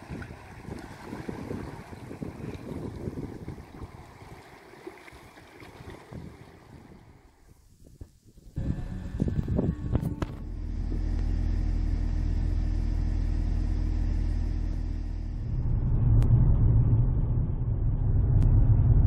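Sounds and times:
low rumble of road noise: 0.0s - 19.0s
car engine humming: 8.5s - 19.0s.

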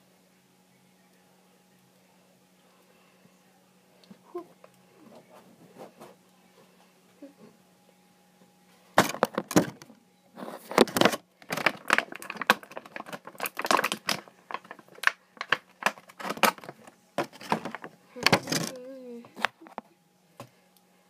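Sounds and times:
plastic packaging crackling: 9.0s - 18.8s.

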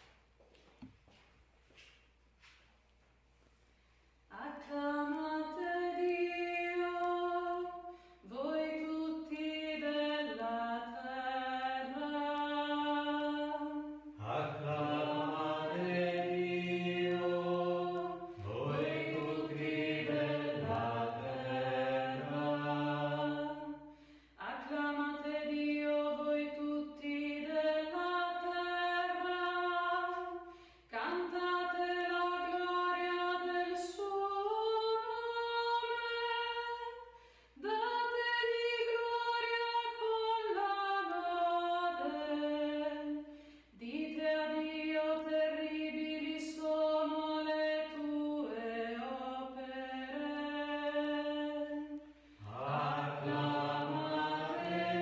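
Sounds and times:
woman singing chant: 4.3s - 55.0s
lower voice singing: 14.2s - 23.7s, 52.4s - 55.0s.

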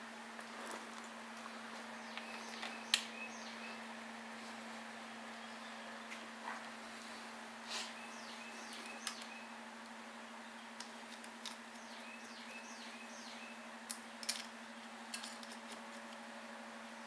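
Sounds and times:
steady low hum: 0.0s - 17.0s
bird chirping: 1.8s - 4.1s, 5.3s - 6.2s, 7.7s - 11.1s, 11.7s - 13.7s
plastic parts clicking: 13.9s - 14.5s.

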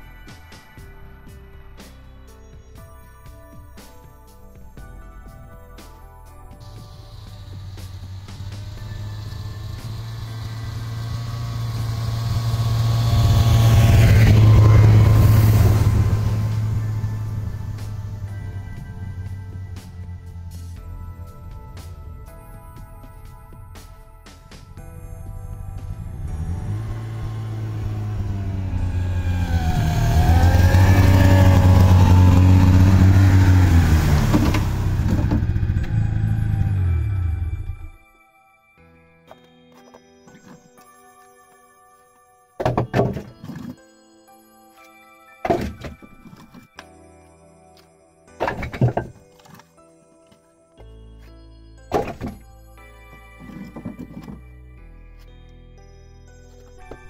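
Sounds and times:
snowmobile engine approaching: 6.6s - 38.0s.

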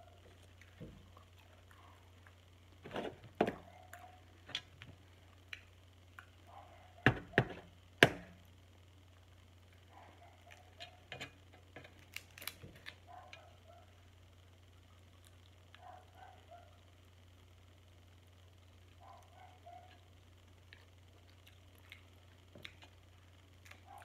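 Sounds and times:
crab shells cracking: 10.4s - 13.1s.

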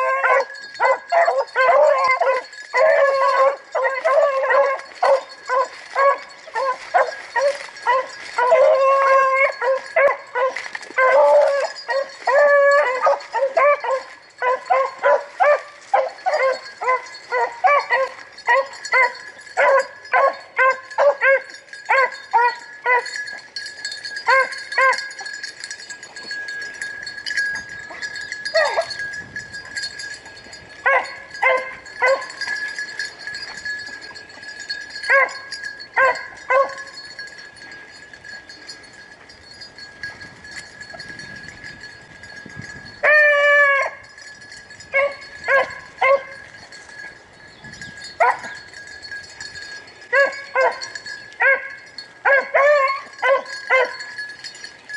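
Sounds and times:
hound howling: 0.0s - 23.3s, 24.2s - 25.3s, 43.0s - 44.1s, 50.2s - 54.1s
hounds barking: 0.0s - 23.5s, 24.1s - 25.5s, 27.8s - 29.8s, 30.8s - 34.2s, 34.9s - 37.0s, 43.0s - 44.1s, 44.9s - 46.5s, 48.2s - 48.6s, 50.1s - 54.3s.

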